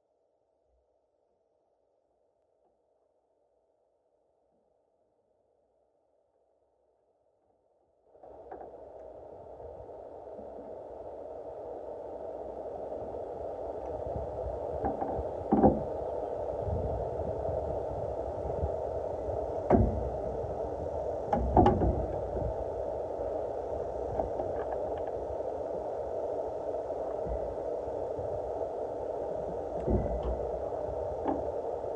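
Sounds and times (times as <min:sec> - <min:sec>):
steady hum: 0:08.2 - 0:31.9.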